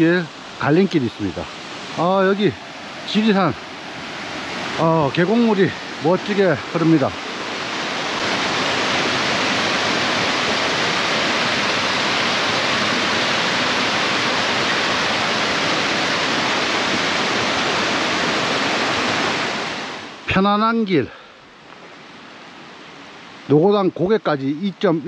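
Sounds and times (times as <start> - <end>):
stream water rushing: 0.0 - 25.0.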